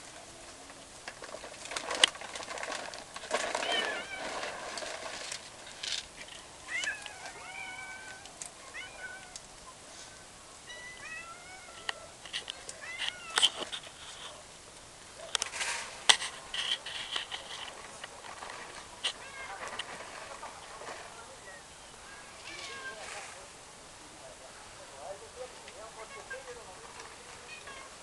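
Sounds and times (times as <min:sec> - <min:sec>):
young animal mewing cries: 0:10.7 - 0:12.2.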